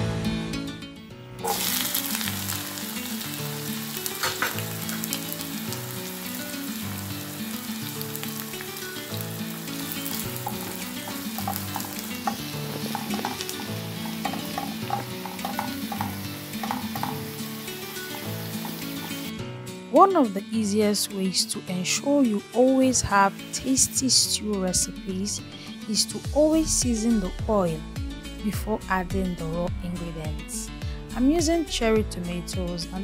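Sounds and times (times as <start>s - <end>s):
onions sizzling in oil: 1.4s - 19.3s
spatula scraping and tapping: 10.0s - 17.5s.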